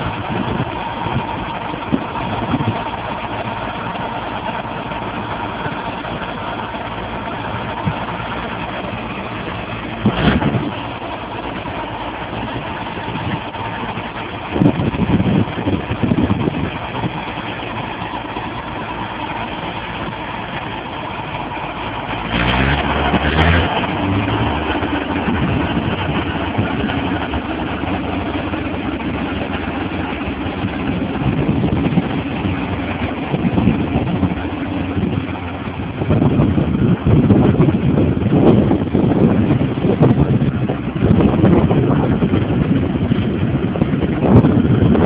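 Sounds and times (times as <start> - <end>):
diesel tractor engines under load: 0.0 - 45.0.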